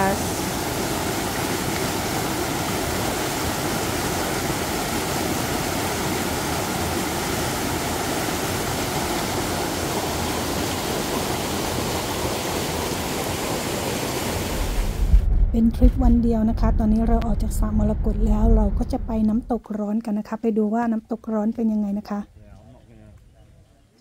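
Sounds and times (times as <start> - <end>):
stream rushing over rocks: 0.0 - 15.1.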